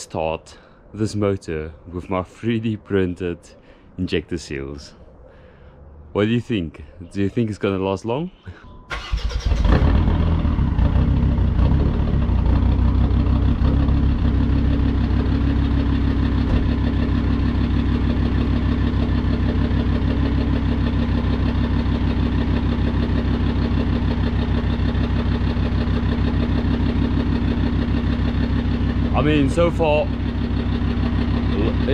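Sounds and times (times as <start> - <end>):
diesel engine starting and idling: 8.9 - 31.9.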